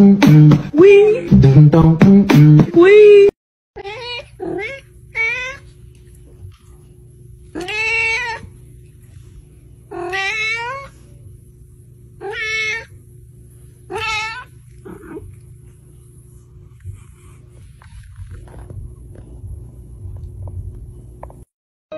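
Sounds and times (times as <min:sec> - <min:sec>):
cat meowing: 0:03.8 - 0:05.7, 0:07.5 - 0:08.5, 0:09.9 - 0:10.9, 0:12.2 - 0:12.9, 0:13.9 - 0:15.2.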